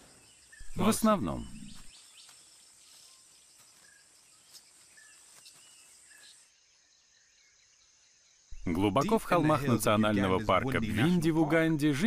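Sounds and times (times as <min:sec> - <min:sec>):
high insect hiss: 0:00.0 - 0:08.8
faint bird chirps: 0:00.0 - 0:11.2.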